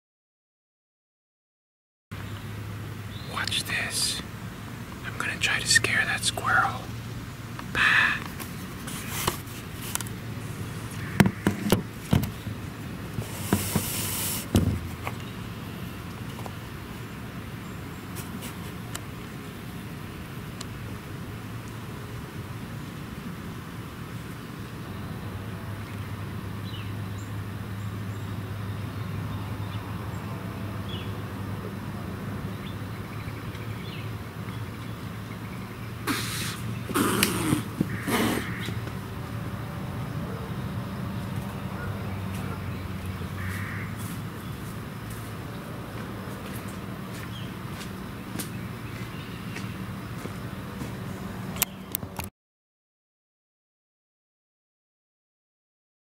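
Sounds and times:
short hiss: 13.2s - 14.6s, 36.0s - 38.6s
heavy thump on hard surface: 14.5s - 15.0s
loud rough noise bursts: 36.0s - 38.6s.

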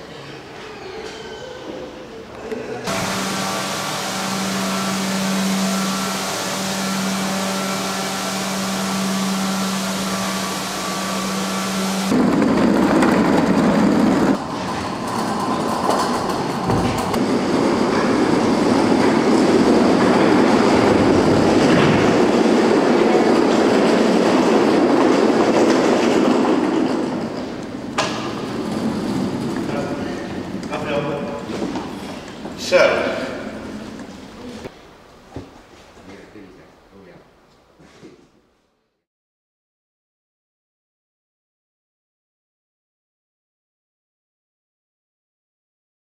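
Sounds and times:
floor scrubber motor hum: 2.8s - 32.1s
crates rolling on caster wheels: 11.2s - 30.8s.

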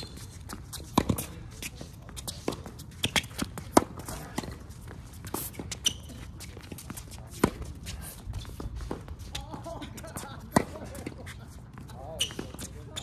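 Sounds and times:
short high shoe squeaks: 0.0s - 0.5s, 5.3s - 6.7s, 12.1s - 13.0s
footsteps shuffling on court: 0.0s - 13.0s.

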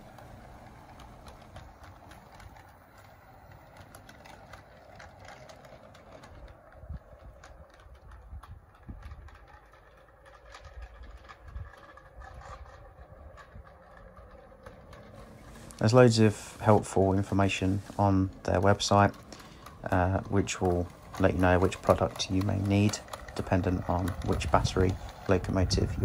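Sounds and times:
model train running on track: 0.0s - 26.0s
wheels clicking on rails: 0.0s - 26.0s.

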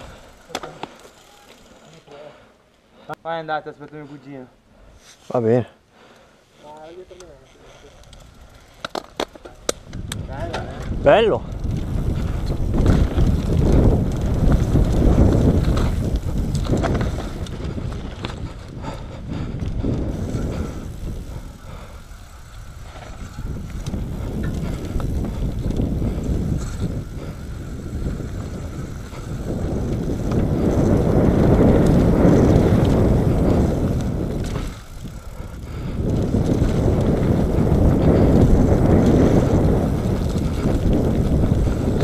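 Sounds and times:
bike tyres on dirt and leaves: 0.0s - 3.6s, 4.8s - 42.0s
bike rattling and knocking: 6.9s - 42.0s
wind buffeting microphone: 9.6s - 42.0s.

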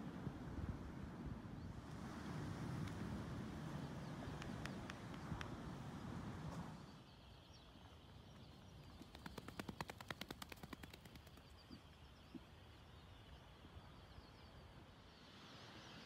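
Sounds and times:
albatross bill-clapping rattle: 9.0s - 11.4s.

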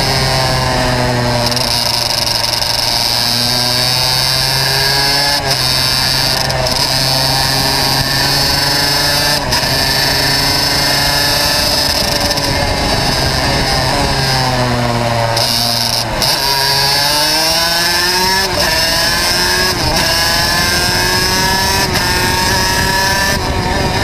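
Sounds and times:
kart engine racing: 0.0s - 24.0s.

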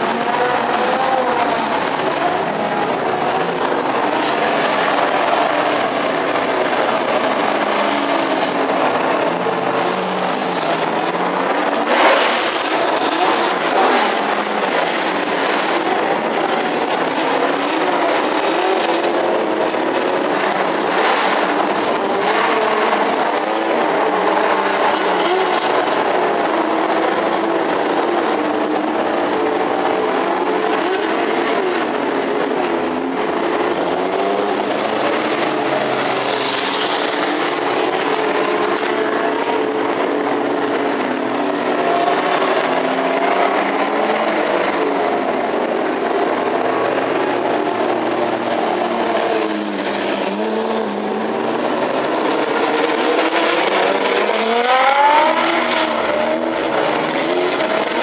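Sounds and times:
racing car engines at low revs: 0.0s - 58.0s.

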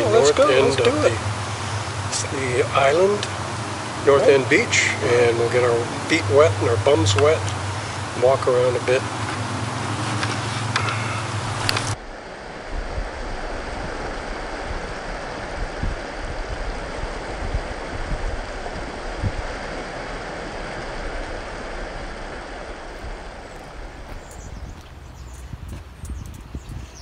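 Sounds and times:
low thumps of waves: 11.3s - 27.0s.

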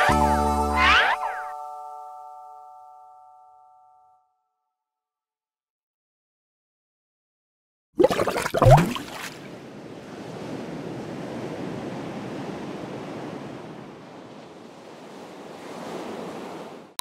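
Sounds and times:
sea waves washing on shore: 8.1s - 17.0s.

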